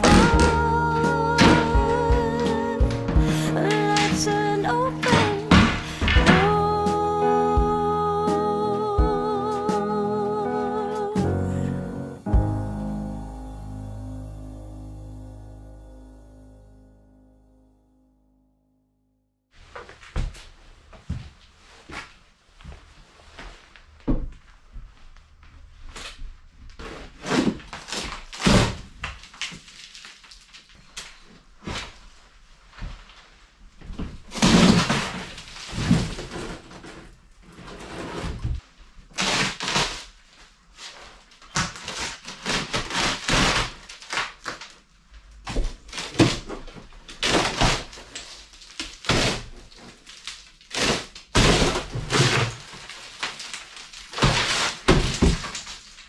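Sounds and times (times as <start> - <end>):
boards cracking and thudding: 0.0 - 6.6, 34.0 - 37.0, 45.4 - 56.0.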